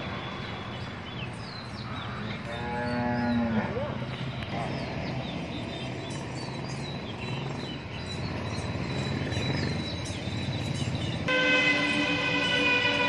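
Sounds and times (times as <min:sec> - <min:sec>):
steady background noise: 0:00.0 - 0:13.0
loud multi-tone horn blast: 0:11.3 - 0:13.0.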